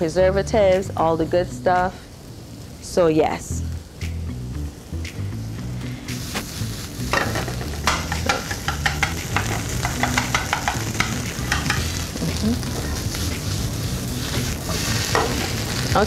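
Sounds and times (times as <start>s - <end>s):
onions sizzling in a frying pan: 0.0s - 16.0s
spoon scraping a pan: 7.2s - 11.9s.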